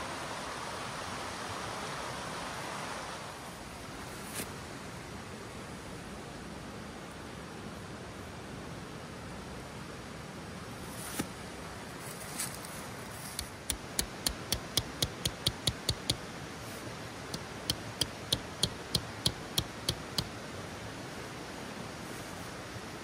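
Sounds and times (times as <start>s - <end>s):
dry leaves rustling: 11.9s - 13.6s
hammer tapping tent peg: 13.4s - 16.2s, 17.4s - 20.3s.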